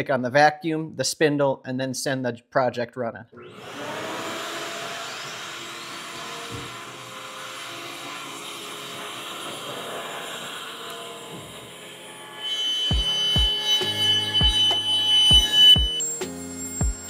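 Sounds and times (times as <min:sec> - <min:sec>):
router spindle whine: 0:03.4 - 0:17.0
vacuum running: 0:03.4 - 0:17.0.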